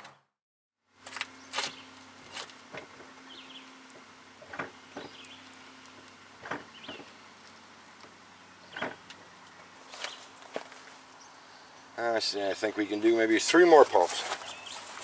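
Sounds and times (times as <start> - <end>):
steady low hum: 1.0 - 15.0
brake pedal knocks and clicks: 6.4 - 7.1.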